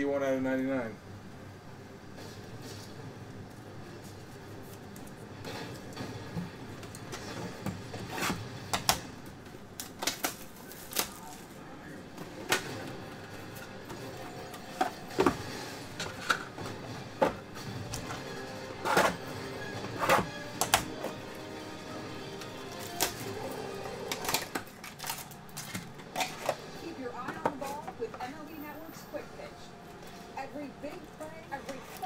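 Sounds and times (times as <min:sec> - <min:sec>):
trading cards clicking and snapping: 0:20.5 - 0:21.0.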